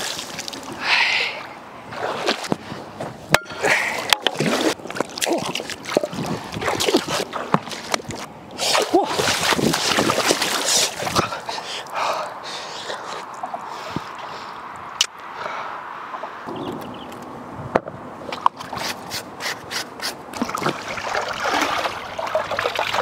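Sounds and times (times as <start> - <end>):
river water splashing: 0.0 - 13.7, 20.3 - 23.0.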